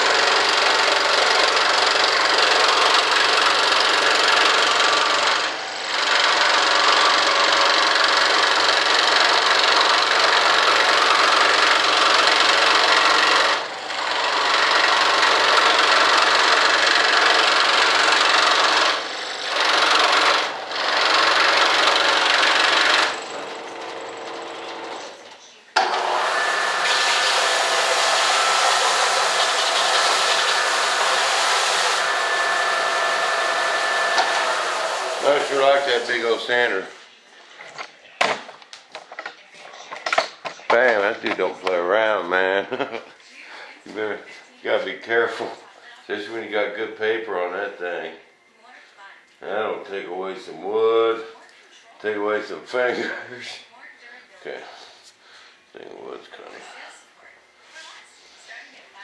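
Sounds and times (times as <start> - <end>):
power sander grinding wood: 0.0 - 24.0, 25.8 - 36.5
motor running: 0.0 - 36.4.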